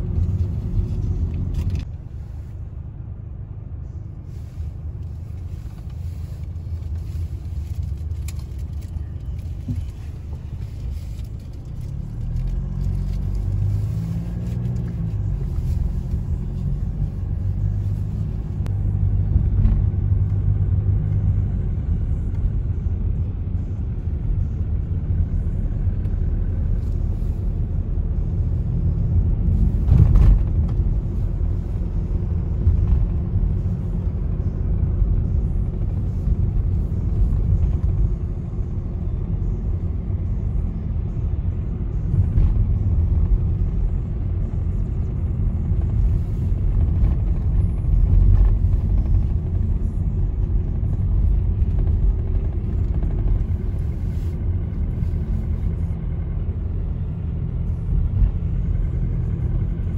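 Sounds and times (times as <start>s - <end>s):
vehicle rumble: 0.0s - 59.9s.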